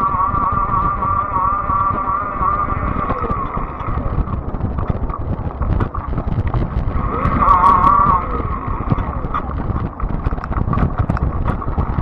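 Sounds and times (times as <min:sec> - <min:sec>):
electric bike motor whine: 0:00.0 - 0:12.0
low rumble: 0:00.0 - 0:12.0
wind buffeting microphone: 0:00.0 - 0:12.0
clicks and rattles from bumps: 0:08.8 - 0:12.0.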